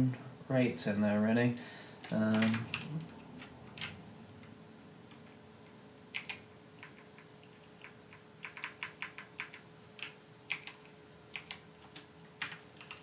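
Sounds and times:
computer keyboard typing: 2.0s - 4.5s, 5.1s - 5.4s, 6.1s - 13.0s.

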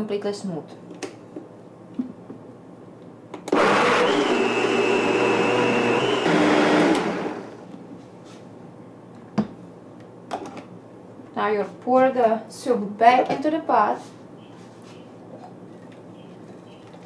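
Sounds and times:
blender motor whining: 3.5s - 7.7s.

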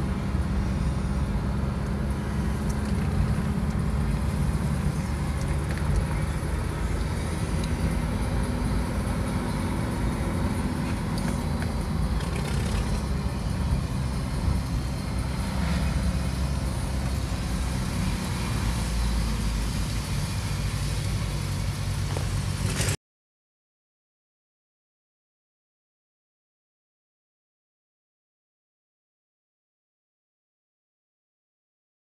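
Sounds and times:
car engine and road noise: 0.0s - 23.0s.

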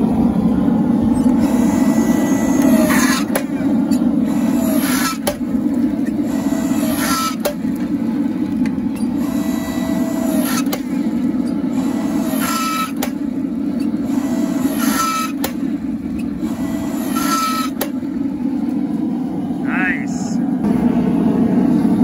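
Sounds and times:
engine running: 0.0s - 22.0s
hydraulic hiss and whine: 1.0s - 7.6s, 9.1s - 10.9s, 11.7s - 13.2s, 13.8s - 18.0s.

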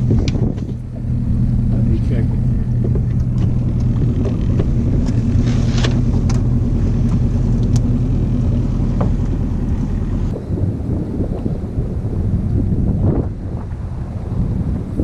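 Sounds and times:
outboard motor humming: 0.0s - 15.0s
light knocks on hull: 8.5s - 9.4s.

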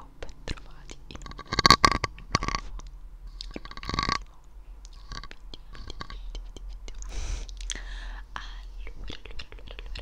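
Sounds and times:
mouth clicks: 0.9s - 7.8s.

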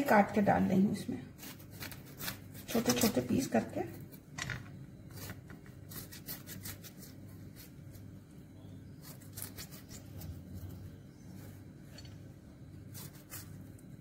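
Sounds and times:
knife cutting lemon: 1.4s - 3.2s, 5.1s - 8.1s, 8.8s - 10.8s, 12.8s - 14.0s.

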